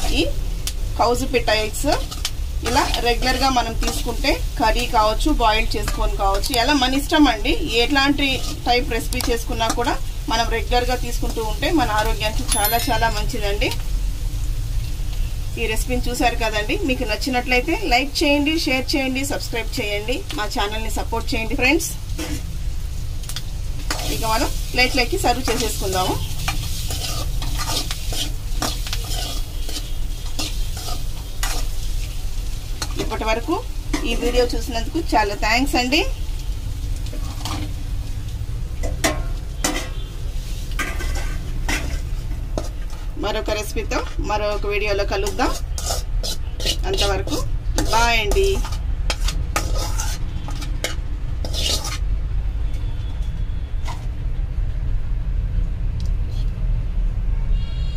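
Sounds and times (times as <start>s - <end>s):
oil sizzling: 0.0s - 52.2s
metal spatula scraping metal pan: 8.2s - 8.8s, 25.3s - 31.8s, 40.7s - 43.1s, 45.1s - 52.1s.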